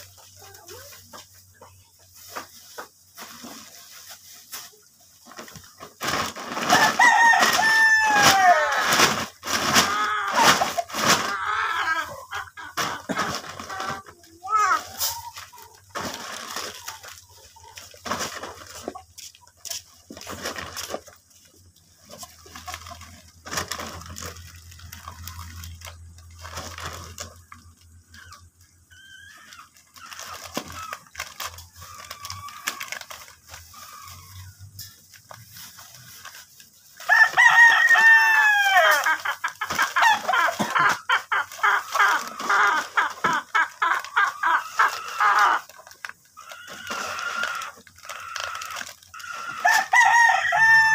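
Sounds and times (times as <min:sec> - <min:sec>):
plastic bags rustling: 0:00.0 - 0:50.9
rooster crowing: 0:06.7 - 0:09.0, 0:37.0 - 0:39.2, 0:49.2 - 0:50.9.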